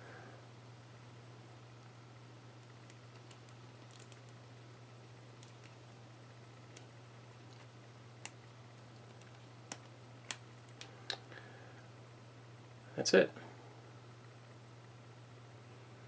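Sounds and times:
low steady hum: 0.0 - 16.0
small metal parts clicking: 2.8 - 4.4.

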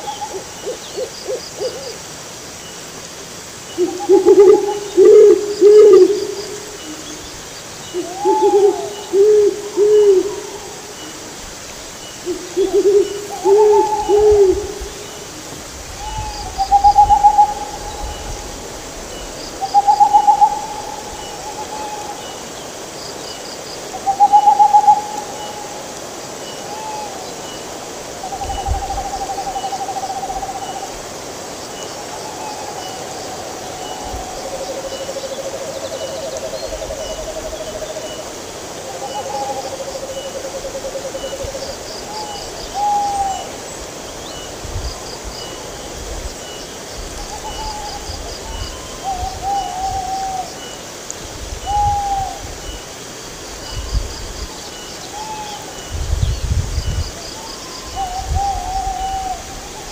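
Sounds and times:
owl hooting: 3.8 - 7.0, 7.9 - 11.1, 12.3 - 15.2, 16.0 - 18.3, 19.7 - 22.2, 24.0 - 25.8.

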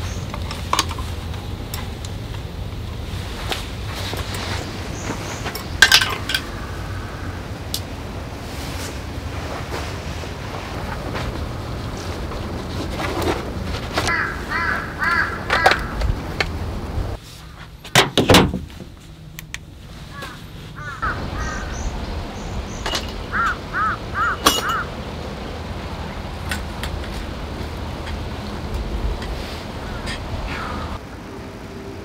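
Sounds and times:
wind noise on microphone: 0.0 - 17.2, 25.4 - 31.0
crows cawing: 6.4 - 7.5, 14.1 - 16.1, 20.1 - 21.9, 23.3 - 24.9, 29.8 - 31.0.

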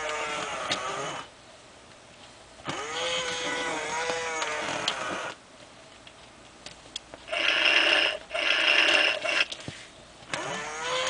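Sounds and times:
toy motors whirring: 0.0 - 1.3, 2.7 - 5.4, 7.3 - 9.6, 10.3 - 11.0.

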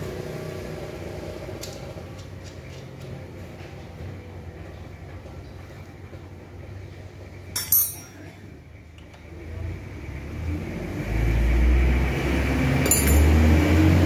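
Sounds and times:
spanner clinking on metal: 7.5 - 8.4, 12.8 - 13.4.

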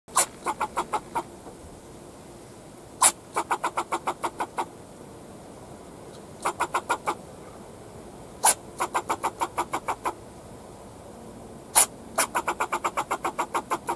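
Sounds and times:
squirrel barking and chucking: 0.1 - 1.4, 3.0 - 4.8, 6.1 - 7.2, 8.4 - 10.2, 11.7 - 13.9.

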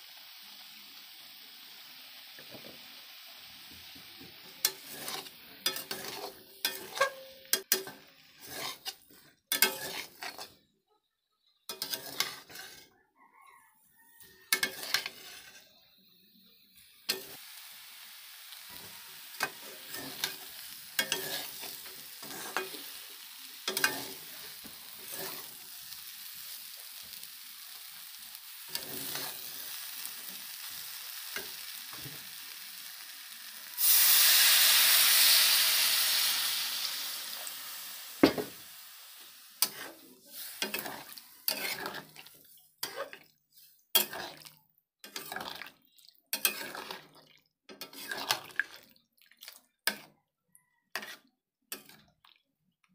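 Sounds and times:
water hissing in a hot pan: 0.0 - 9.0, 16.8 - 43.1
food sizzling in a metal pan: 0.0 - 49.0, 49.6 - 50.1, 50.9 - 52.2
metal spatula scraping a pan: 4.4 - 10.7, 11.4 - 13.0, 14.1 - 16.3, 17.0 - 17.4, 18.7 - 32.6, 33.4 - 38.7, 39.5 - 48.9, 49.8 - 50.1, 50.9 - 52.1.

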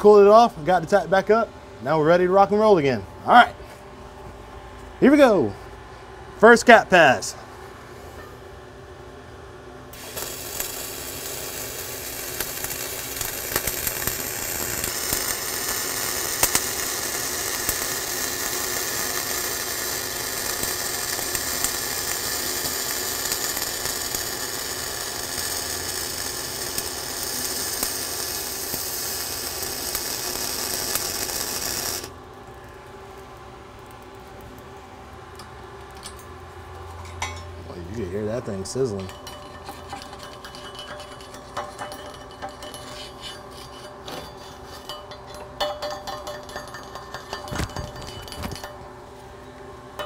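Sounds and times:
welding arc crackling hiss: 9.9 - 36.2, 37.7 - 48.9
welding spatter pops: 10.0 - 34.7.

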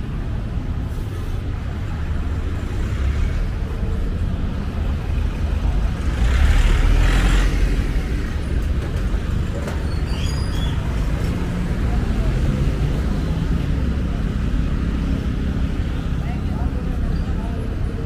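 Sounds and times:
cars and motorbikes passing: 0.0 - 18.0.

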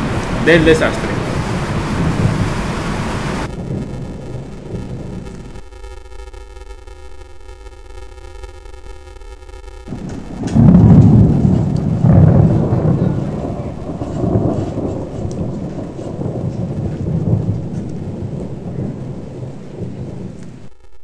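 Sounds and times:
thunder rolling: 0.0 - 5.7, 9.9 - 20.7
steady rain: 0.0 - 21.0.

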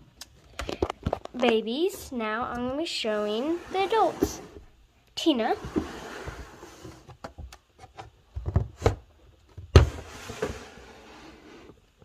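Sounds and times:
plastic tub scraping: 3.1 - 4.7, 5.4 - 7.1.

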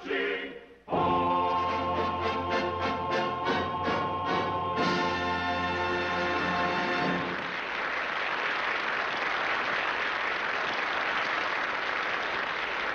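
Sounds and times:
audience applause: 6.8 - 12.9.

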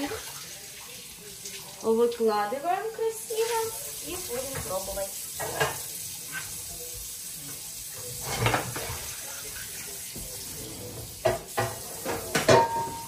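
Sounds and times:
ceramic dish clattering on glass: 11.2 - 13.0.

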